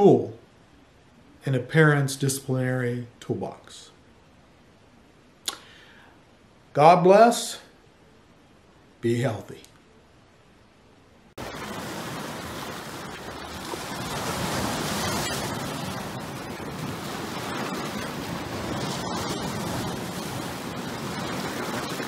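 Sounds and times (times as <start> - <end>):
surf breaking over rocks: 11.4 - 22.0.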